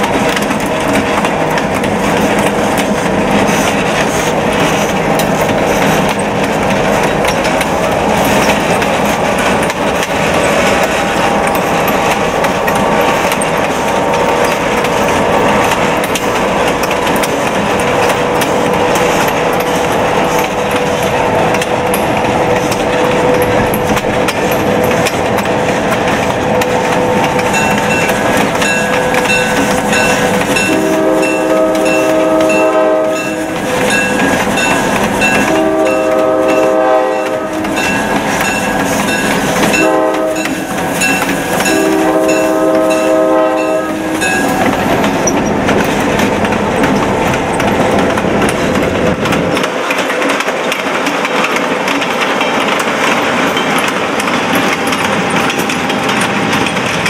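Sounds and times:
moving locomotive noise: 0:00.0 - 0:57.0
locomotive air horn blasts: 0:29.9 - 0:34.0, 0:35.2 - 0:38.0, 0:39.6 - 0:44.6.

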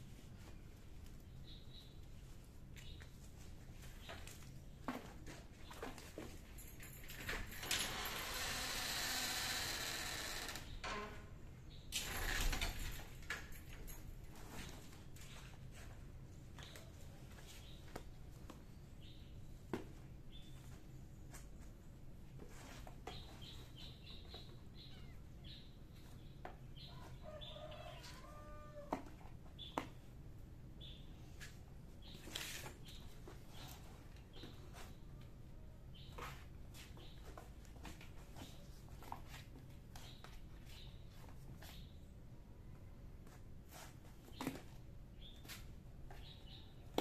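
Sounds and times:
small birds chirping: 0:00.6 - 0:05.0, 0:23.0 - 0:28.4, 0:44.2 - 0:47.0.

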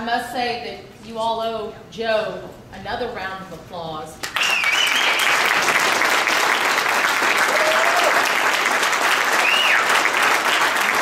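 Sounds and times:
audience clapping: 0:04.2 - 0:11.0
calls from the crowd: 0:07.4 - 0:08.5.

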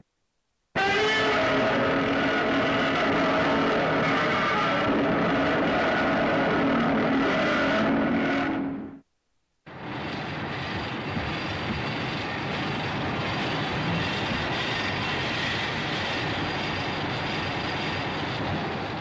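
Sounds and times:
steady rushing noise: 0:09.7 - 0:19.0.

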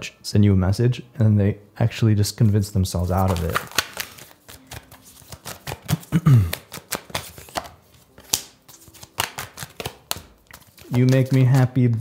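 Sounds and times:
cards being shuffled: 0:02.4 - 0:12.0.

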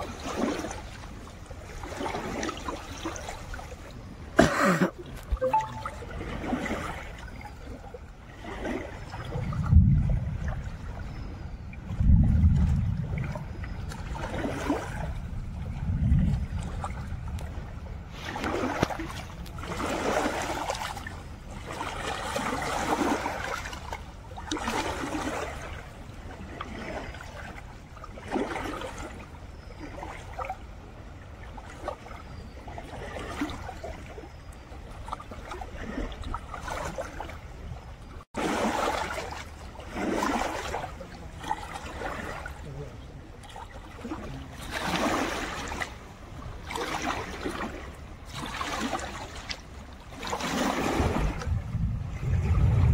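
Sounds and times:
waves lapping on rocky bank: 0:00.0 - 0:52.9
wind buffeting microphone: 0:08.3 - 0:26.8, 0:49.8 - 0:52.9.

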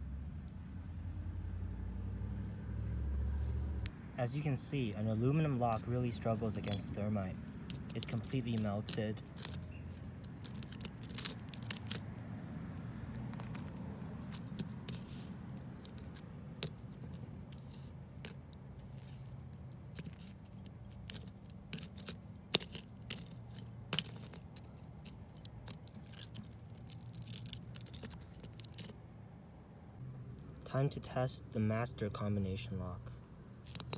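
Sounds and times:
metal tool clicking and scraping on metal: 0:05.7 - 0:12.2, 0:12.8 - 0:29.0, 0:33.6 - 0:33.9.

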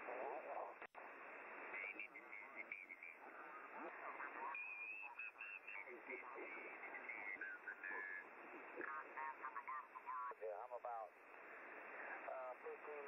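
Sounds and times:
radio band hiss: 0:00.0 - 0:13.0
garbled radio voice: 0:01.7 - 0:11.1, 0:12.1 - 0:13.0.

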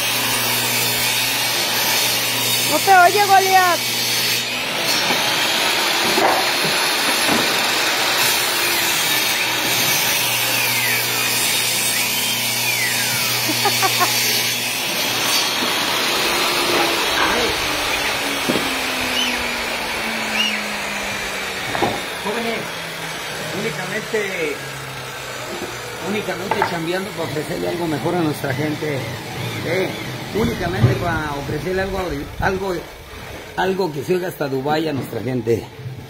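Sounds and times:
saw blade winding down: 0:00.0 - 0:34.5
table saw cutting plywood: 0:00.0 - 0:36.0.

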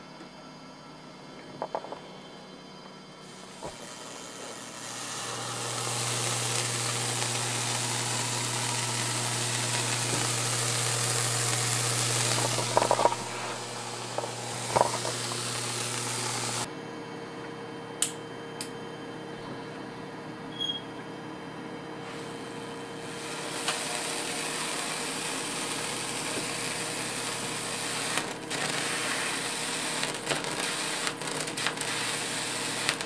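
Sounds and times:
electrical discharge hissing: 0:03.3 - 0:16.7, 0:23.0 - 0:33.0
sharp electrical crackles: 0:03.4 - 0:16.7, 0:23.0 - 0:33.0.

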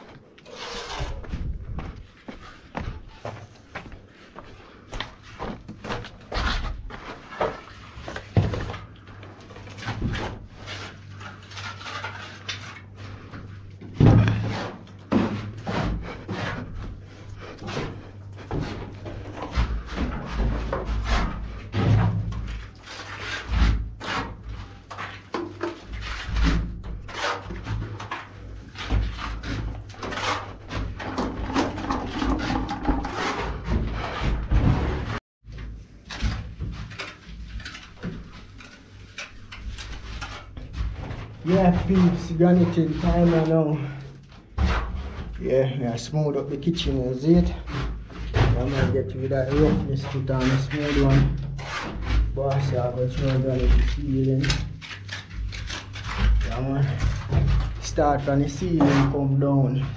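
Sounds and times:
footsteps on gritty floor: 0:00.0 - 0:31.5
trowel scraping in bucket: 0:00.4 - 0:01.2, 0:36.9 - 0:59.9.

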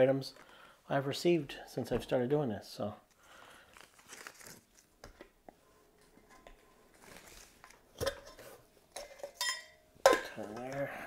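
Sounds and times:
paper rustling: 0:03.6 - 0:04.9, 0:06.9 - 0:07.8.

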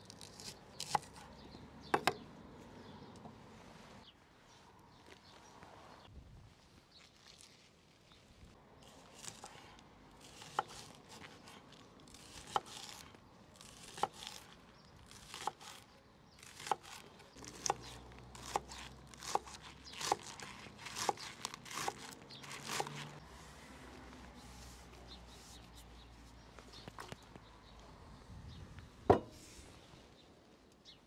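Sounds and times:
rustling crinkling: 0:04.6 - 0:09.5.

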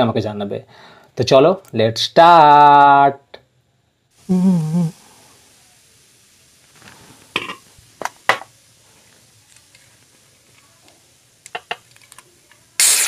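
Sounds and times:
aluminium cans knocking and clinking: 0:11.4 - 0:12.2.

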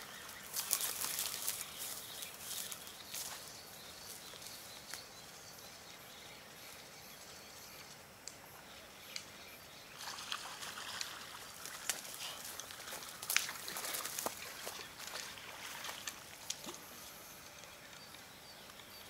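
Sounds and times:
trickling water: 0:09.9 - 0:16.8.

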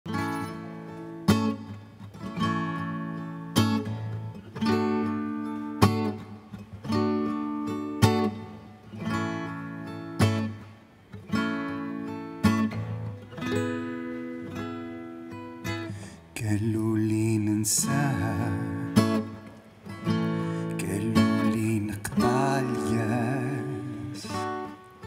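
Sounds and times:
acoustic guitar strumming: 0:00.1 - 0:25.0.

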